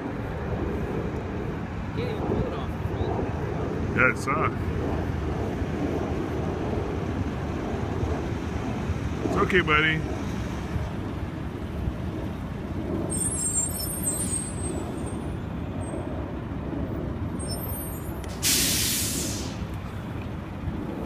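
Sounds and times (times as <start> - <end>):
low rumble of vehicles: 0.0 - 21.0
air brake hiss: 18.3 - 19.6.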